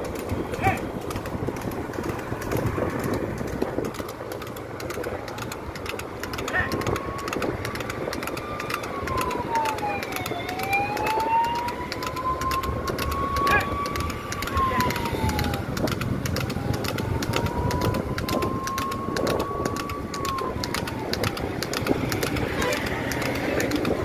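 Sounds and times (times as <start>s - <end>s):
road rumble: 0.0s - 24.0s
wind: 0.0s - 24.0s
wind buffeting microphone: 0.0s - 24.0s
siren wailing: 4.9s - 24.0s.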